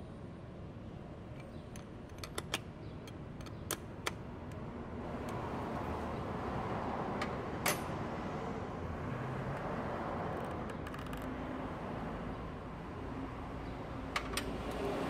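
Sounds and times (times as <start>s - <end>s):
wrench clicking on metal nut: 1.4s - 4.2s.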